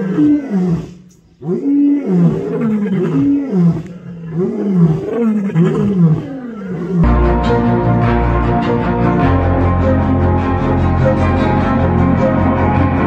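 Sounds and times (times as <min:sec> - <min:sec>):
lions roaring: 0:00.0 - 0:07.1.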